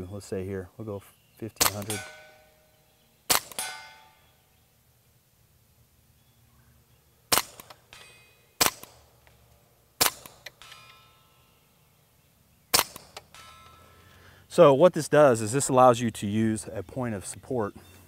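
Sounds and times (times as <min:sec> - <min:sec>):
pistol shots: 0:01.6 - 0:02.6, 0:03.3 - 0:04.2, 0:07.3 - 0:09.1, 0:10.0 - 0:11.0, 0:12.7 - 0:13.7.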